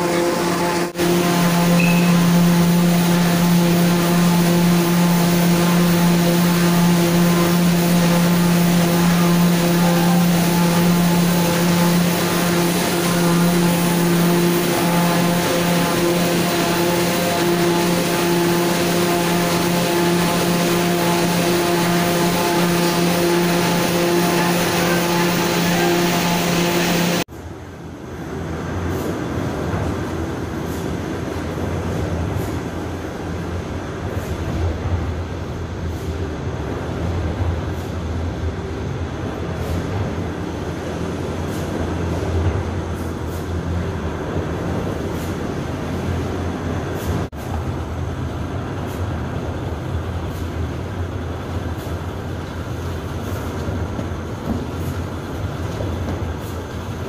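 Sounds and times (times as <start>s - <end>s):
machine hiss: 0.0s - 27.3s
low machine rumble: 0.0s - 57.0s
machine drone with low hum: 0.0s - 57.0s.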